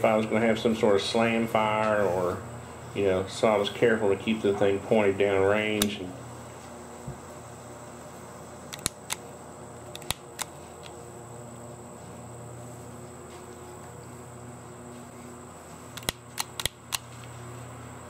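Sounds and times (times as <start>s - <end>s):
pistol slide metallic clicks: 8.7s - 9.2s, 16.0s - 17.1s.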